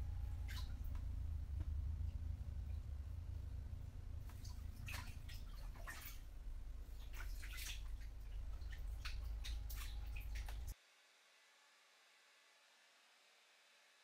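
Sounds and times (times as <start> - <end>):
steady low hum: 0.0 - 10.8
bath water dripping and splashing: 0.1 - 10.8.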